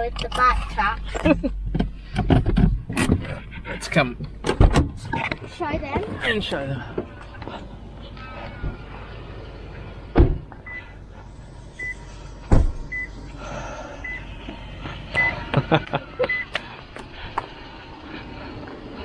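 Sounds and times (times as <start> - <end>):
vehicle warning chime beeping: 10.6 - 11.0, 11.7 - 12.1, 12.8 - 13.2, 14.0 - 14.4, 15.1 - 16.6
loud thumps: 12.4 - 13.0.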